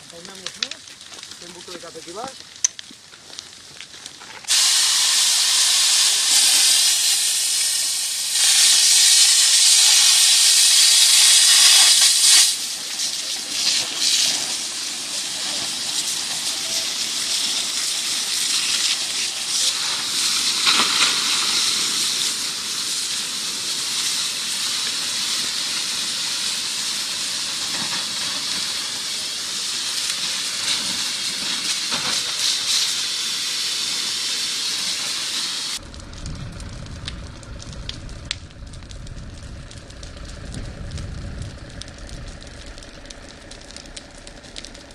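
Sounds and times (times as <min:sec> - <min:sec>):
hose nozzle spraying water: 0:04.5 - 0:22.2.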